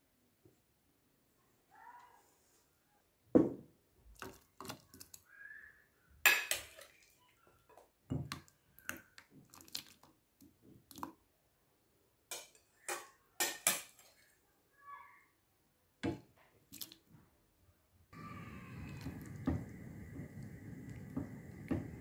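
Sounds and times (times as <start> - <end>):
soft plops and splashes: 4.1 - 5.3, 8.1 - 11.2, 16.6 - 17.1
metal utensils clinking on pots: 6.3 - 7.0, 12.3 - 14.2.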